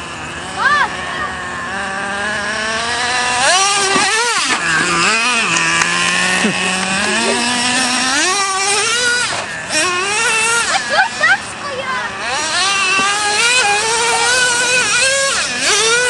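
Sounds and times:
small nitro engine revving: 0.0 - 16.0.

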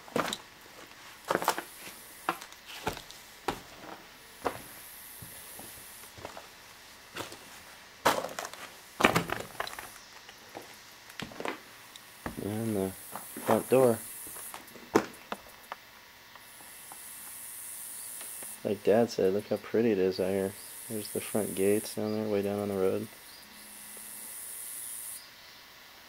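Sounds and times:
footsteps crunching over debris: 0.0 - 15.5.

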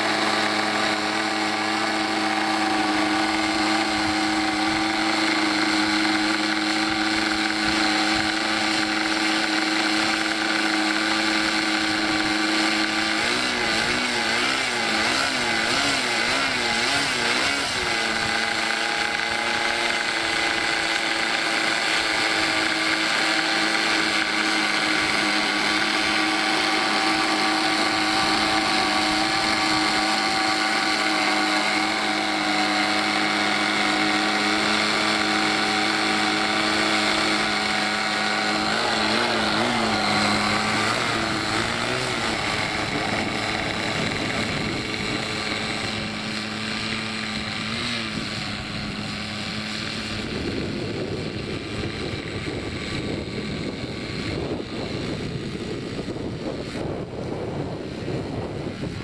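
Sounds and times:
model aircraft engine idling: 0.0 - 59.0.

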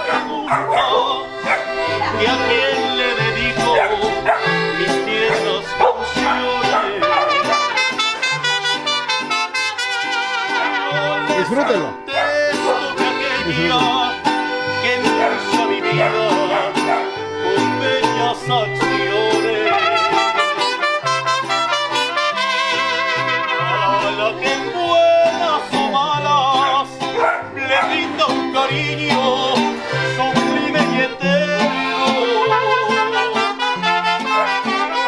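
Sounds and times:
mariachi band playing: 0.0 - 35.0
plucked bass guitar: 0.0 - 35.0
strummed guitar: 0.0 - 35.0.

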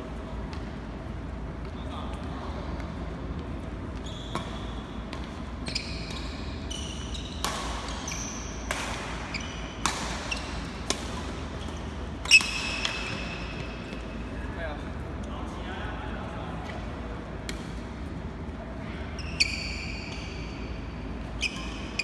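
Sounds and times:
shoes squeaking on court: 3.6 - 14.2, 18.9 - 22.0
racket hitting shuttlecock: 6.0 - 14.1.

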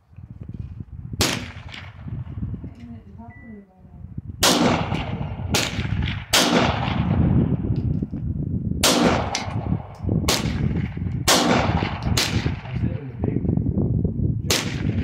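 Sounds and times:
pistol shots with echo: 1.2 - 2.0, 4.4 - 7.3, 8.8 - 12.9, 14.5 - 15.0.

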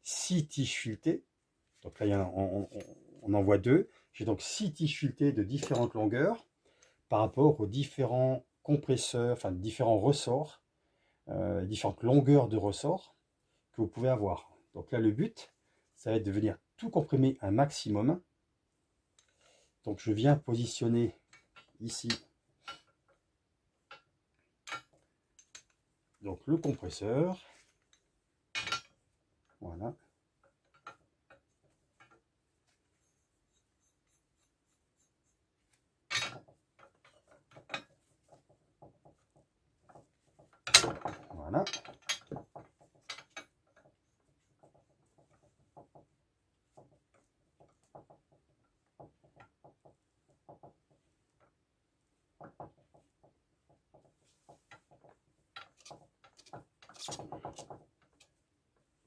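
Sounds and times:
metal tool clicks and knocks: 5.6 - 6.0, 23.9 - 25.8, 27.9 - 29.6, 30.4 - 32.2, 36.1 - 43.9, 54.0 - 58.3.

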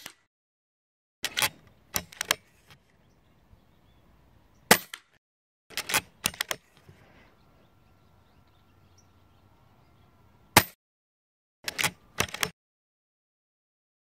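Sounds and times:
rifle lever mechanical clicks: 1.2 - 2.8, 5.7 - 6.9, 11.7 - 12.5.

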